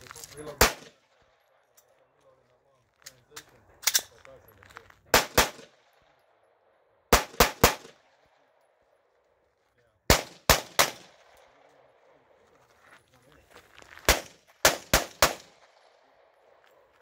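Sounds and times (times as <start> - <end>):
gunshots with short echo: 0.5 - 1.0, 5.1 - 5.9, 7.1 - 8.1, 10.1 - 12.0, 14.0 - 16.2.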